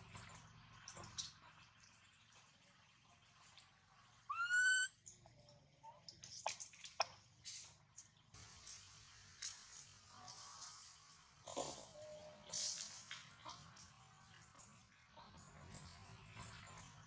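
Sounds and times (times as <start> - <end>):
monkey coo call: 4.3 - 4.9.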